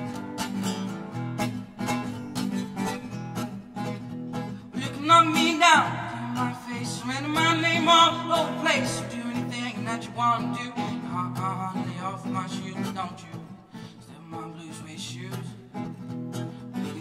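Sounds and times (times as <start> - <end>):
acoustic guitar strumming: 0.0 - 17.0
man singing with vibrato: 4.7 - 17.0.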